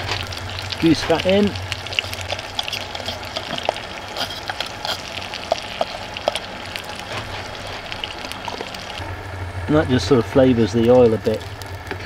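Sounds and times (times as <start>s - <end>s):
fat sizzling in a pan: 0.0s - 9.0s.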